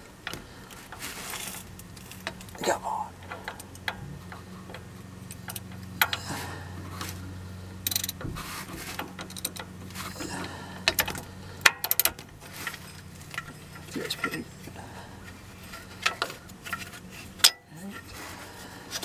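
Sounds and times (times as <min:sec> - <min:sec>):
low steady hum: 0:00.0 - 0:19.0
metal wrench clicking: 0:07.8 - 0:08.2, 0:09.2 - 0:09.7, 0:10.8 - 0:14.4, 0:15.7 - 0:17.7.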